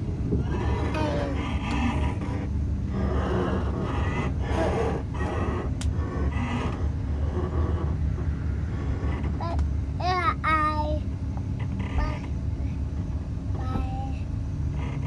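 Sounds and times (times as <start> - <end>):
railcar rumble from inside: 0.0 - 15.0
passengers talking: 0.5 - 1.9, 9.4 - 11.0.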